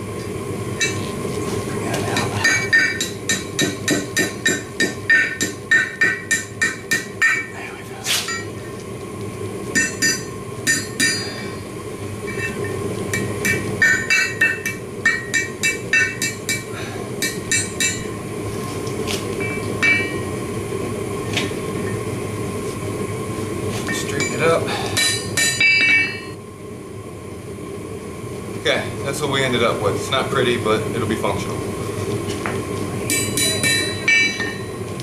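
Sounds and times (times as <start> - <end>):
steady low hum: 0.0 - 35.0
hammer striking hot steel on anvil: 0.8 - 1.1, 1.9 - 7.6, 8.2 - 8.6, 9.7 - 11.6, 12.3 - 18.2, 19.4 - 20.3, 23.8 - 26.4, 33.1 - 34.8.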